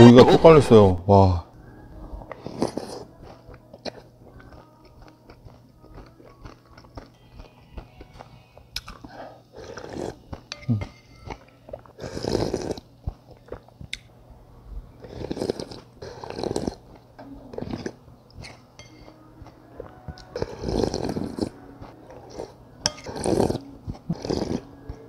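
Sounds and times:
chewing: 2.2s - 14.1s, 15.0s - 25.0s
person slurping noodle soup: 2.4s - 3.1s, 9.5s - 10.2s, 12.0s - 12.8s, 15.0s - 16.9s, 20.4s - 21.6s, 22.2s - 24.7s.

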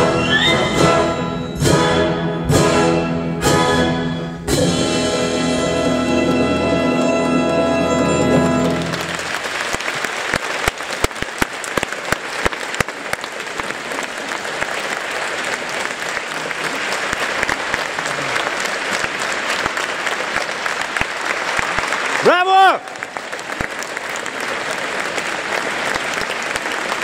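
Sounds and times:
audience applauding: 6.8s - 27.0s
sharp loud individual claps: 8.7s - 27.0s.

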